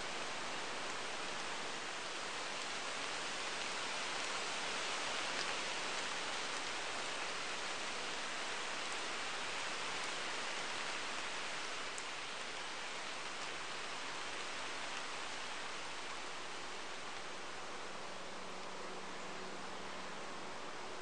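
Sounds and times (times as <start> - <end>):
rain falling on foliage: 0.0 - 21.0.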